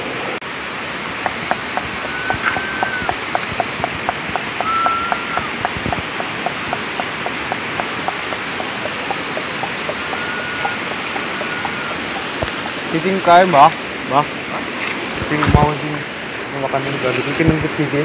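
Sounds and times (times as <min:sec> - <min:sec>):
river water rushing: 0:00.0 - 0:17.2
night creature ticking calls: 0:01.2 - 0:13.5
whistle-like notes: 0:02.0 - 0:06.0, 0:07.8 - 0:12.6.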